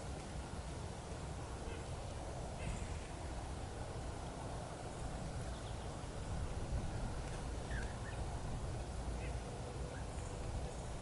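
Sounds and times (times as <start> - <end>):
low outdoor rumble: 0.0 - 11.0
faint bird notes: 7.3 - 8.3.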